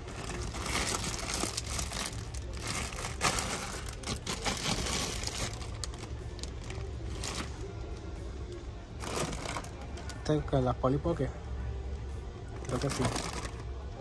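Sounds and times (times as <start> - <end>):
plastic packaging crinkling: 0.0 - 7.7, 9.0 - 10.2, 12.6 - 13.7.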